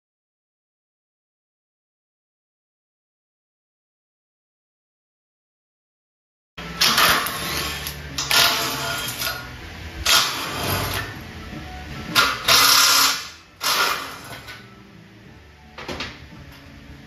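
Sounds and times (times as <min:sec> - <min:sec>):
background music: 0:06.6 - 0:17.0
cordless drill running: 0:06.8 - 0:09.1, 0:12.4 - 0:14.4.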